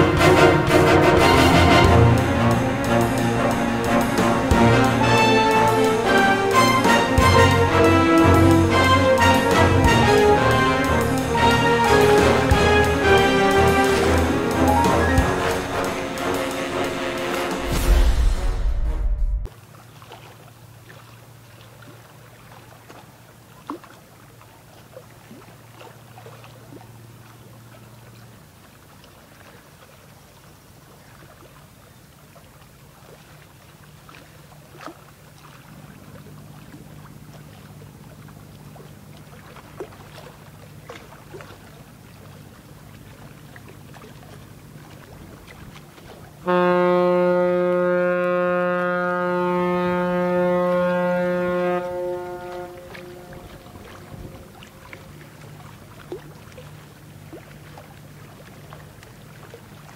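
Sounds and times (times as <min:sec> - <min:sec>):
ship's horn blast: 0:00.0 - 0:19.5, 0:45.7 - 0:56.2
low drone of passing ships: 0:00.0 - 0:19.8, 0:21.3 - 0:59.9.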